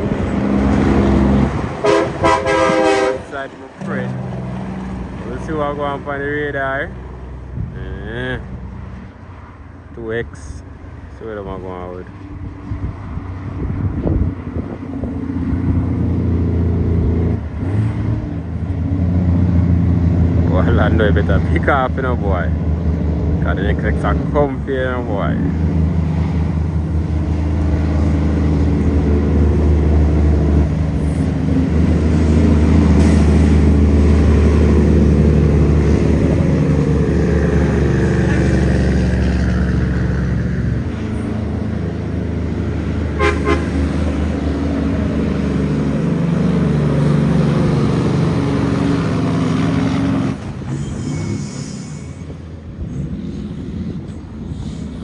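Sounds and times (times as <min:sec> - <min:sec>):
diesel truck engine drone: 0:00.0 - 0:55.0
truck horn toot: 0:01.8 - 0:03.4, 0:43.2 - 0:43.9.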